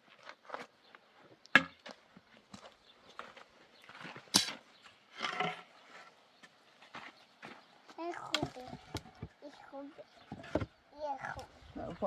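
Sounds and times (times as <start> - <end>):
wood scraping: 5.1 - 6.2.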